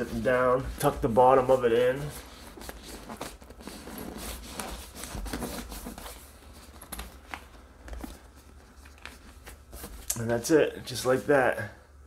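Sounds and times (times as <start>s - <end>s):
zipper and leather rustling: 0.0s - 8.8s.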